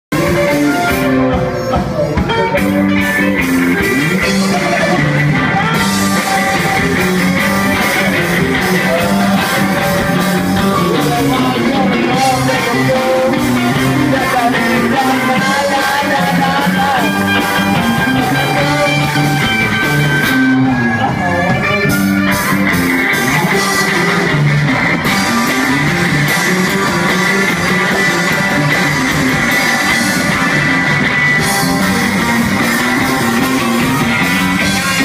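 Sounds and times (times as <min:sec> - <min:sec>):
guitarist singing along: 0:00.1 - 0:35.0
live rock band playing loud: 0:00.1 - 0:35.0
person singing into microphone: 0:00.2 - 0:03.0, 0:03.8 - 0:19.6.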